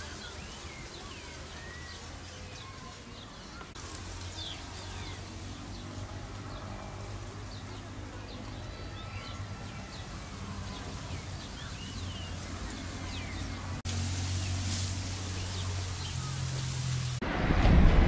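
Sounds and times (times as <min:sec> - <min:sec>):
small birds chirping: 0:00.0 - 0:17.2
hiss with low drone: 0:00.0 - 0:18.0
low outdoor hum: 0:00.0 - 0:18.0.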